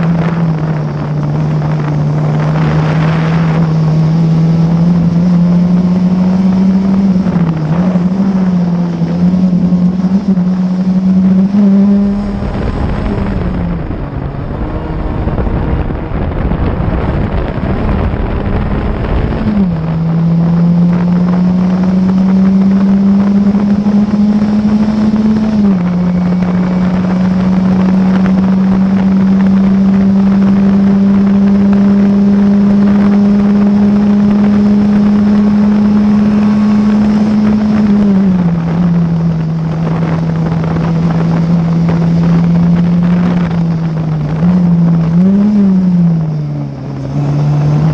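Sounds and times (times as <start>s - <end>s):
race car engine revving: 0.0s - 47.9s
wind rumble on microphone: 0.0s - 47.9s.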